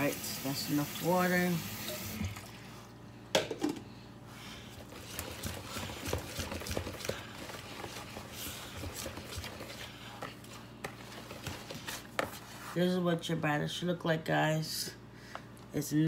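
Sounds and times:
batter stirred in bowl: 0:04.4 - 0:13.3.

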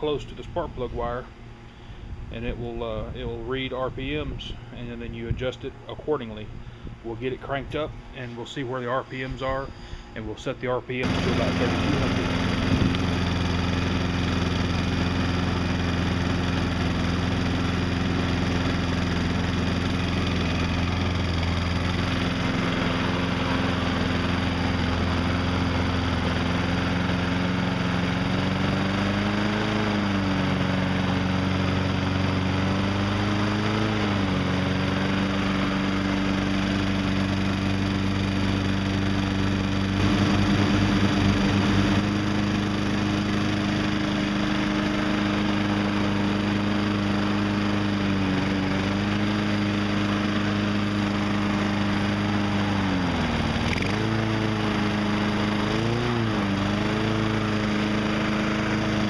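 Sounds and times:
lawn mower engine running: 0:00.0 - 0:59.0.

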